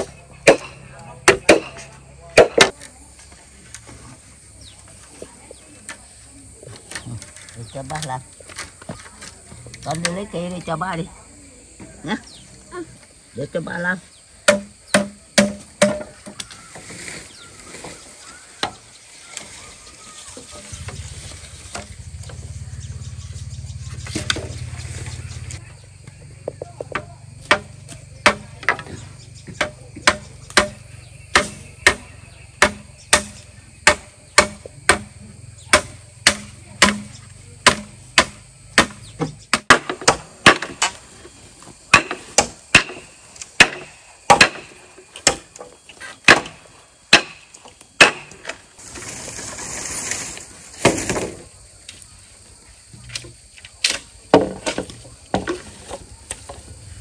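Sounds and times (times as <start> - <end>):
hand tool striking bamboo: 0.0 - 2.9, 14.4 - 17.1, 21.6 - 22.4, 24.0 - 25.6, 26.5 - 41.0, 41.9 - 48.6, 53.1 - 56.6.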